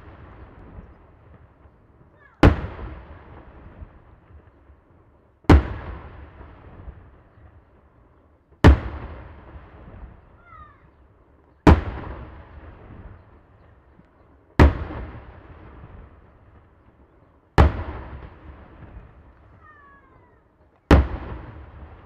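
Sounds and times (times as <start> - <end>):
echo of bangs: 0.0 - 1.8, 2.4 - 4.6, 5.5 - 7.2, 8.6 - 10.3, 11.6 - 13.5, 14.6 - 16.8, 17.6 - 19.4, 20.9 - 22.0.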